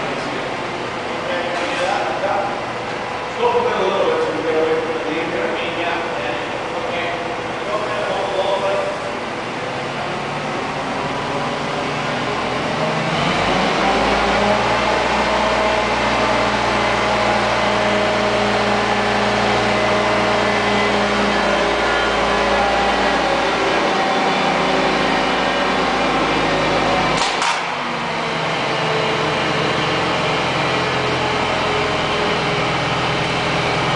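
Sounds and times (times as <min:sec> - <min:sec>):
crane hoist machinery drone: 0:00.0 - 0:33.9.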